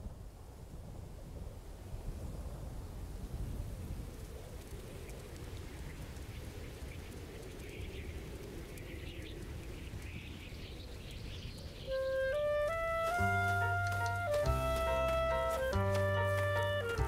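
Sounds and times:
low wintry wind: 0.0 - 17.0
melody of held notes: 11.9 - 17.0.

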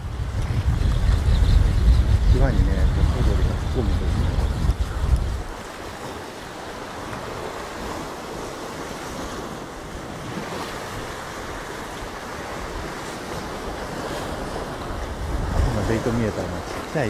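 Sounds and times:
surf washing against rocks: 0.0 - 17.0.

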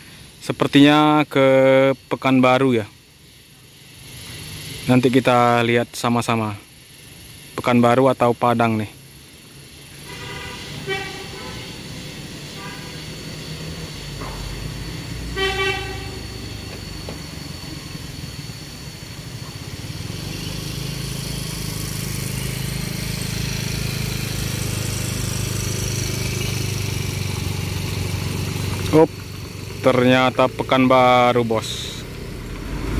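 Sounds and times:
bus engine drone: 0.0 - 32.9
vehicle horn: 9.9 - 13.3, 15.2 - 16.5.

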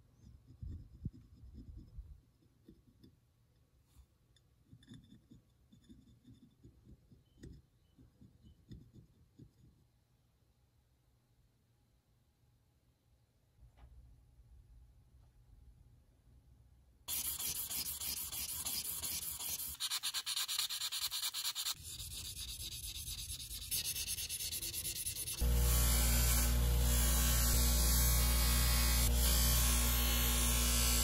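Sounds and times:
abrasive rubbing on steel: 17.1 - 31.0
bench grinder motor running: 25.4 - 31.0.

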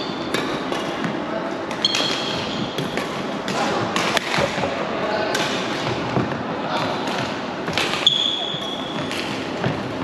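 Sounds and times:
faint hall chatter: 0.0 - 10.0
rackets hitting shuttlecock: 0.2 - 9.9
sneakers squeaking on wooden court: 1.7 - 3.0, 7.8 - 10.0.

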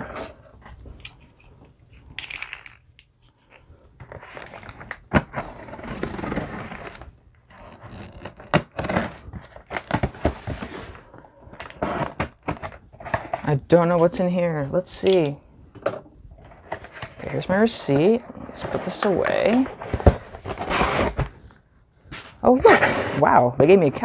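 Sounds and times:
cardboard flaps scraping: 18.3 - 23.3.

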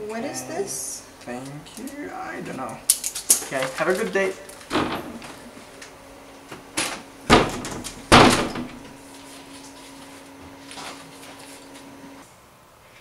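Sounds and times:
door shutting: 4.6 - 5.5, 6.5 - 9.0.

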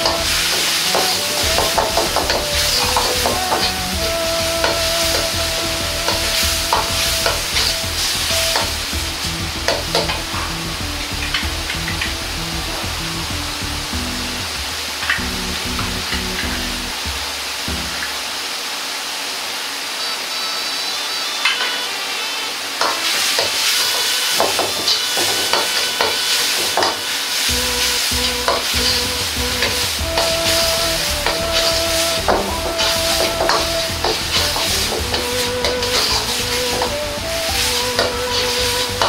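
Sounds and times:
metal ladle scraping a wok: 22.8 - 29.9
sauce sizzling in a wok: 22.8 - 37.0.

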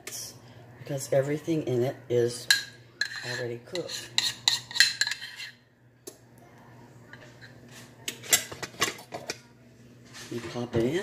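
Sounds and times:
dishes and utensils clattering: 2.4 - 5.6, 7.1 - 9.5
metal spoon scraping ceramic bowl: 3.0 - 5.6.

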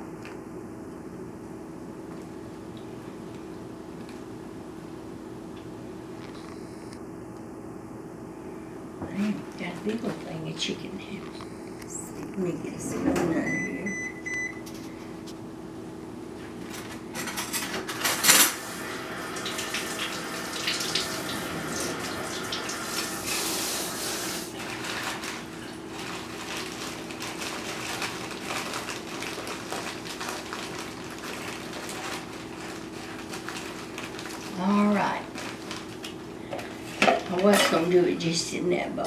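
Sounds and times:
steady low hum: 0.0 - 39.0
water running into sink: 18.5 - 25.8.

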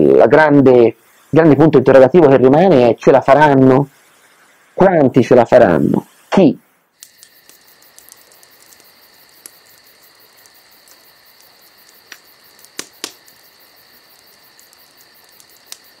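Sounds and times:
crickets chirping: 0.0 - 16.0
faint clicks: 7.0 - 16.0.

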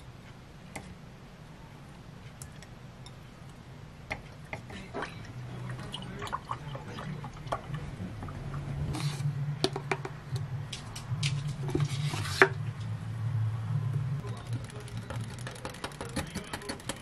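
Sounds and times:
steady low hum: 0.0 - 17.0
plastic tub clicks and rustles: 14.3 - 17.0.

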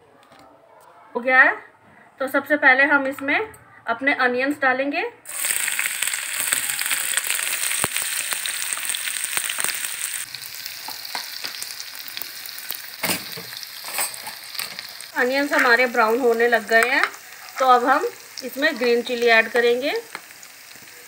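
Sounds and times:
onions sizzling in oil: 5.3 - 21.0.

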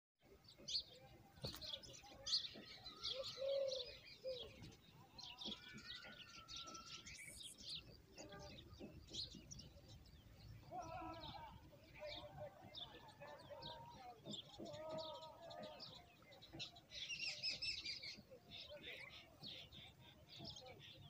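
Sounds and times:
nestlings begging chirps: 0.7 - 12.1
lower longer bird calls: 1.7 - 21.0.

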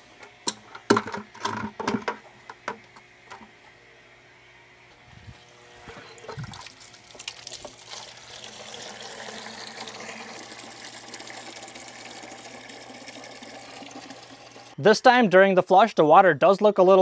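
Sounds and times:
water pouring into plastic bucket: 6.2 - 14.8.

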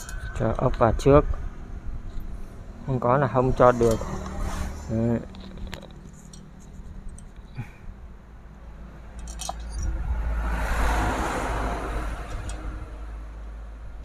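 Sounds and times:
low rumbling rush: 0.0 - 14.0
metallic clinks of small parts: 5.2 - 7.6, 9.1 - 10.0.

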